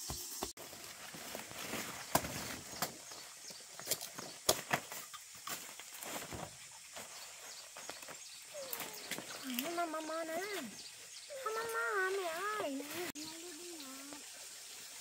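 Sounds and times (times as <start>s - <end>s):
rustling leaves and stems: 0.0s - 15.0s
machete chopping plant stalks: 1.9s - 3.0s.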